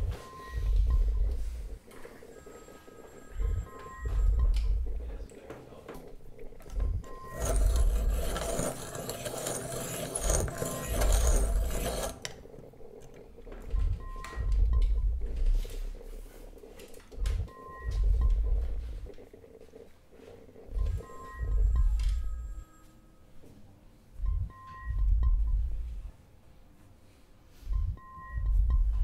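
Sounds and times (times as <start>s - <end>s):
deep low thuds: 0.0s - 1.8s, 3.4s - 5.2s, 6.7s - 7.1s, 13.6s - 16.2s, 17.2s - 19.1s, 24.2s - 26.0s
pencil sharpener grinding: 7.2s - 12.6s.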